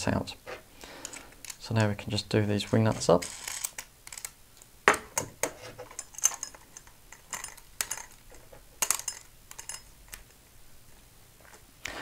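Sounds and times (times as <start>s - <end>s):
small metal clicks and clinks: 5.9s - 10.4s.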